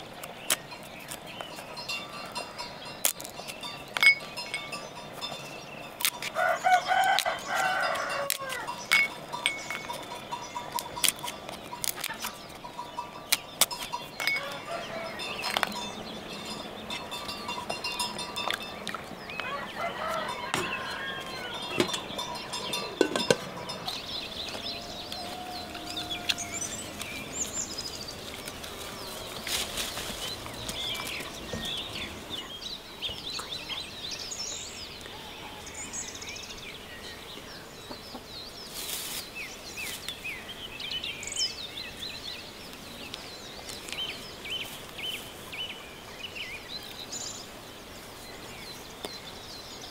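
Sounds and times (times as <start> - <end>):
rooster crowing: 6.3 - 8.8, 14.3 - 15.5, 19.4 - 22.2, 24.2 - 27.0.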